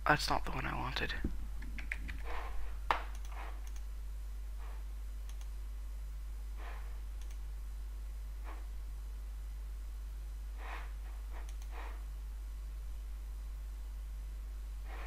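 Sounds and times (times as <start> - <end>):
low electrical hum: 0.0 - 15.0
computer mouse clicking: 1.6 - 3.9, 5.2 - 5.5, 7.2 - 7.4, 11.4 - 11.8.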